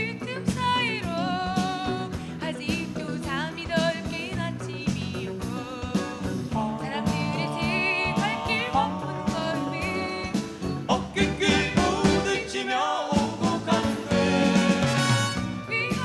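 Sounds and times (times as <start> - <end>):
woman singing: 0.0 - 14.2, 15.6 - 16.0
acoustic guitar: 0.0 - 16.0
backing band with drums: 0.0 - 16.0
man singing: 5.8 - 14.6.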